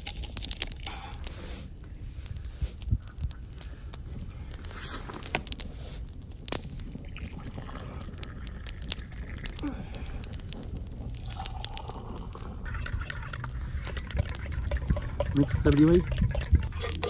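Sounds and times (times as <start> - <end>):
hot water pouring into mugs: 0.0 - 1.2, 7.0 - 17.0
wind rumble on microphone: 1.8 - 17.0
pot and mugs clinking: 12.6 - 17.0.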